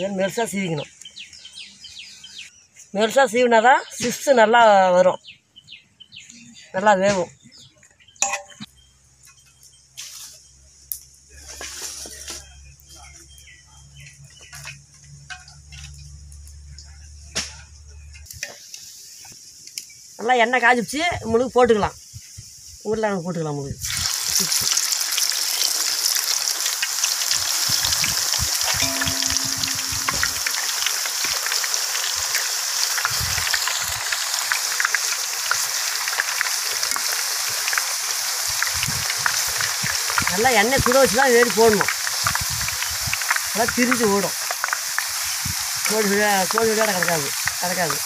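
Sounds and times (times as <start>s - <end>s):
potato slices sizzling in oil: 17.9s - 48.0s
high insect hiss: 18.3s - 23.0s
low hum: 28.8s - 30.5s
short chirps: 28.8s - 30.5s.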